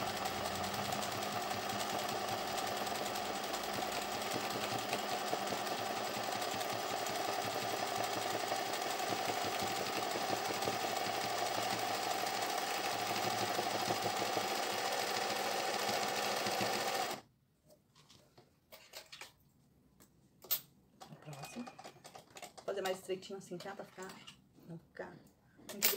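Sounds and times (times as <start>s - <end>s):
sewing machine running fast: 0.0s - 17.2s.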